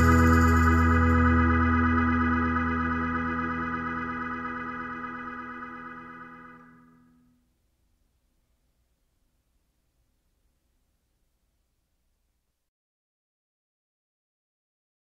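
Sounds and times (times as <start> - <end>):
organ-like keyboard chord: 0.0 - 7.1.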